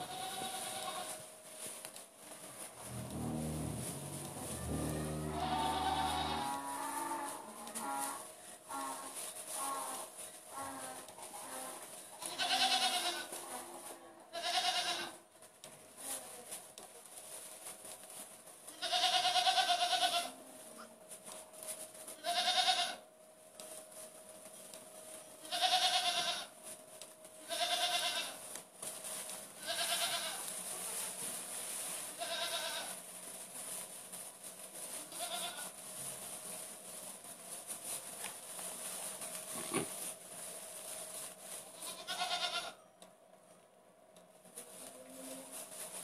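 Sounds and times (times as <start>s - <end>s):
goat kids bleating: 0.0s - 1.2s, 3.0s - 11.2s, 12.2s - 13.4s, 14.3s - 15.2s, 18.7s - 20.4s, 22.2s - 23.0s, 25.4s - 26.6s, 27.4s - 28.4s, 29.6s - 30.5s, 32.2s - 33.0s, 35.0s - 35.8s, 41.8s - 42.8s.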